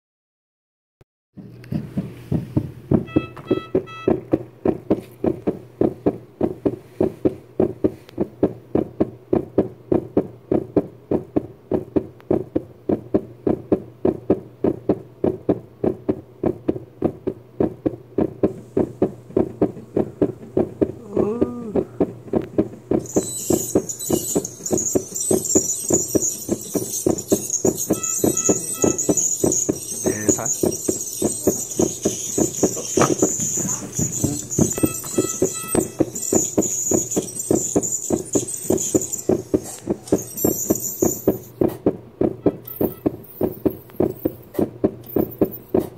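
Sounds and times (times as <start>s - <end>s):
background music with quick beat: 1.8s - 9.0s, 18.3s - 45.9s.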